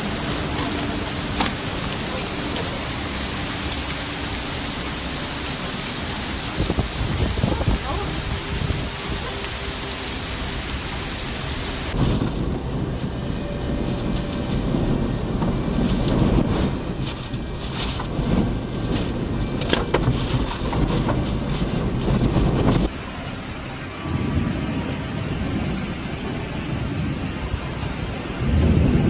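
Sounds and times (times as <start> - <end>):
raindrops tapping on windshield: 0.0 - 5.2, 11.9 - 22.9
heavy rain: 0.0 - 29.0
strong gusting wind: 0.0 - 29.0.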